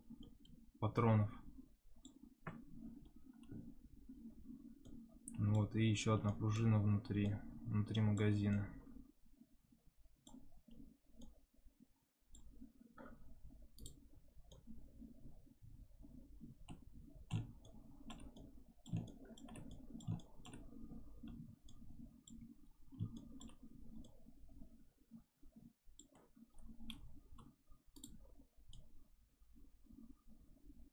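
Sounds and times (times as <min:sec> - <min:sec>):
faint low hum: 0:00.0 - 0:30.9
mouse and keyboard clicking: 0:13.8 - 0:14.6, 0:16.6 - 0:24.2, 0:26.0 - 0:28.9.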